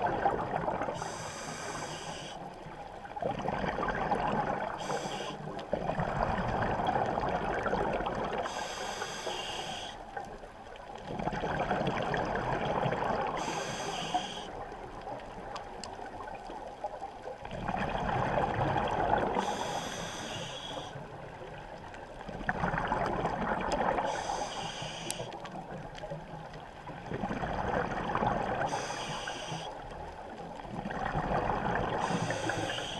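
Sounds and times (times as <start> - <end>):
regulator hiss: 1.0 - 2.5, 4.8 - 5.4, 8.5 - 10.0, 13.4 - 14.5, 19.4 - 21.0, 24.1 - 25.3, 28.7 - 29.7, 32.0 - 32.9.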